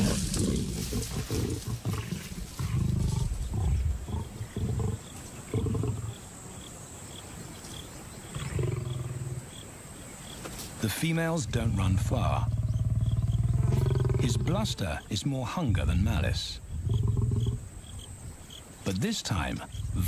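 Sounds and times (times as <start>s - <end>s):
lions snarling and growling: 0.0s - 6.3s, 8.3s - 9.6s, 12.0s - 14.9s, 16.7s - 17.6s.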